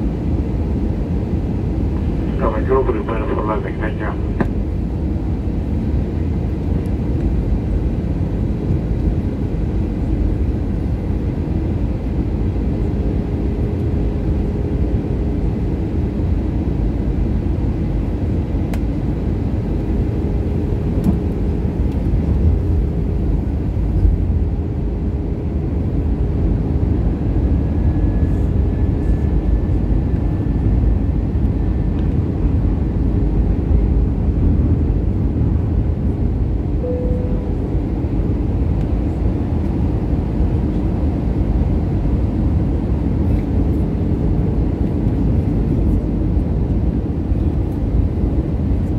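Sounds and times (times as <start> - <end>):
aircraft cabin engine rumble: 0.0 - 48.9
faint high whine: 36.8 - 38.3.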